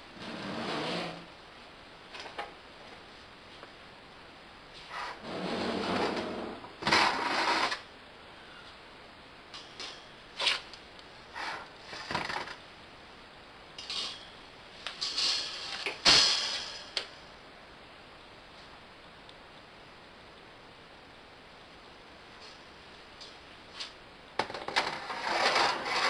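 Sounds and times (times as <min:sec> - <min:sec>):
wire shelf scraping on runners: 0:00.2 - 0:01.3, 0:04.8 - 0:07.9, 0:11.3 - 0:12.6, 0:24.5 - 0:26.0
metal shelf clanks: 0:13.8 - 0:17.0.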